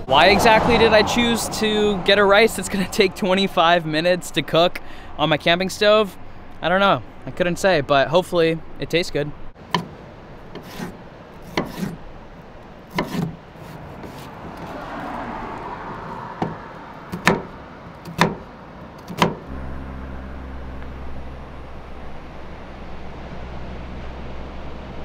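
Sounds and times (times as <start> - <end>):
knife chopping on wooden board: 11.5 - 12.0, 12.9 - 13.4, 17.2 - 17.5, 18.1 - 18.4
steady low hum: 19.4 - 25.0.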